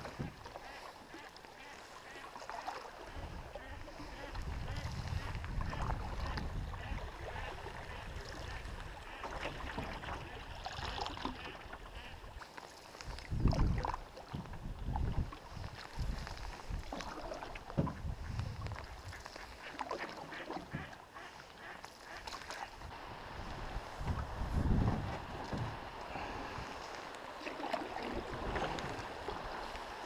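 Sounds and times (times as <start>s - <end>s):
paddle strokes in water: 0.0s - 30.0s
wind buffeting microphone: 3.1s - 9.2s, 13.1s - 19.2s, 22.8s - 27.0s.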